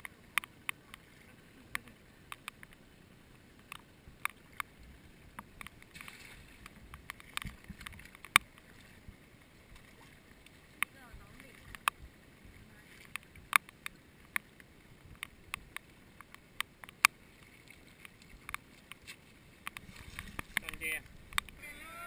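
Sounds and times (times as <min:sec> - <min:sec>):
sharp ticks and knocks: 0:00.0 - 0:01.1, 0:01.7 - 0:02.8, 0:03.6 - 0:12.1, 0:13.0 - 0:21.6
net splashing onto water: 0:05.8 - 0:06.7.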